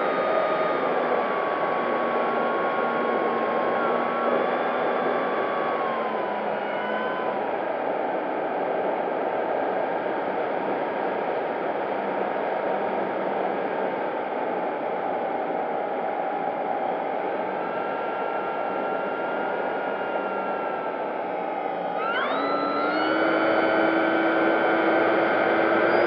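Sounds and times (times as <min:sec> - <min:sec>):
higher whine: 0:15.5 - 0:26.0
electric motor and propeller whine: 0:17.7 - 0:26.0.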